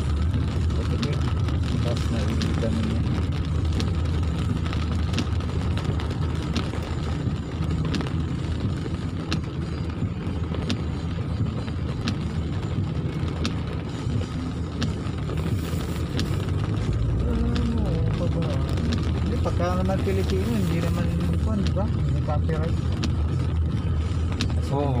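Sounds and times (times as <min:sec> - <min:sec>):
car engine and tyre rumble: 0:00.0 - 0:25.0.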